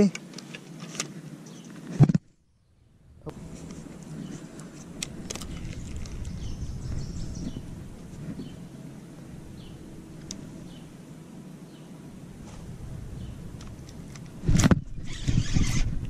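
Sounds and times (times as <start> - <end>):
wind rumble on microphone: 2.0 - 11.2, 12.0 - 16.0
microphone handling noise: 3.2 - 10.8, 12.3 - 16.0
high bird chirps: 5.4 - 7.8.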